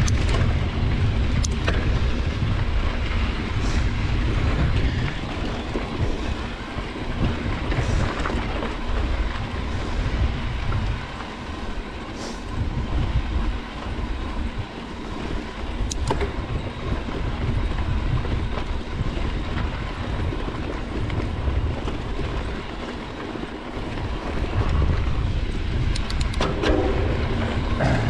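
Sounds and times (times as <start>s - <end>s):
bike tyre and frame rattle: 0.0s - 28.0s
wind noise on microphone: 0.0s - 28.0s
sharp clicks: 15.9s - 16.2s, 25.9s - 26.8s.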